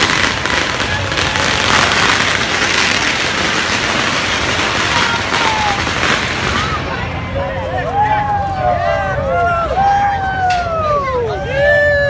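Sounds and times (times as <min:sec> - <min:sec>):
firecrackers crackling: 0:00.0 - 0:07.9.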